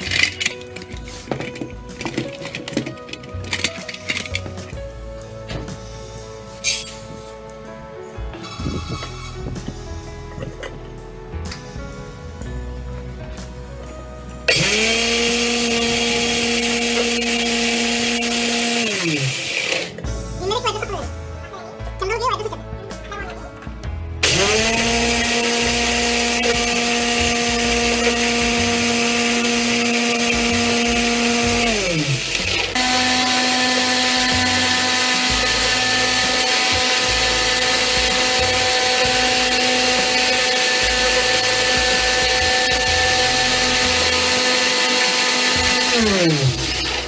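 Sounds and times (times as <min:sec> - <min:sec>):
mixer grinder motor whining: 0:00.0 - 0:04.8, 0:08.4 - 0:09.7, 0:14.5 - 0:20.1, 0:24.2 - 0:47.0.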